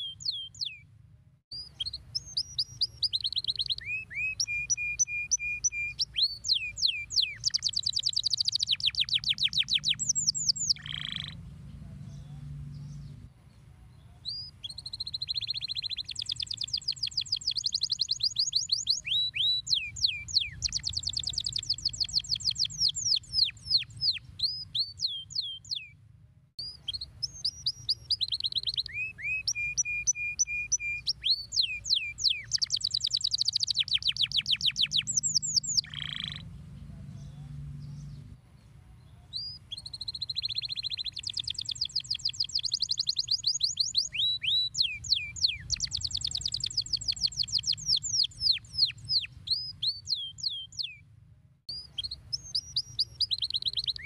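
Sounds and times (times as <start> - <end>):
canary singing: 0.0 - 0.8, 1.5 - 13.3, 14.0 - 26.0, 26.6 - 38.4, 39.0 - 51.0, 51.7 - 54.0
low background hum: 9.8 - 14.2, 34.9 - 39.2.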